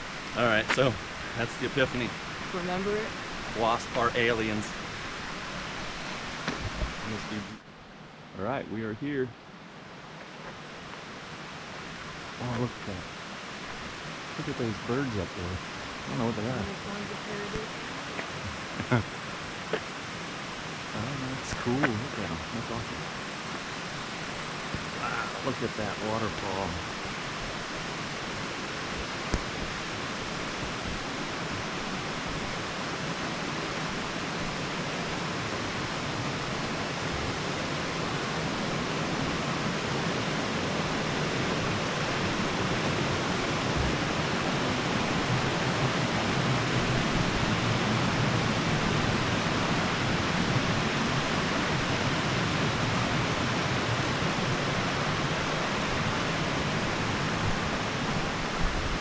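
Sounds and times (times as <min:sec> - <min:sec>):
waterfall rushing: 0:00.0 - 0:07.6, 0:24.4 - 0:59.0.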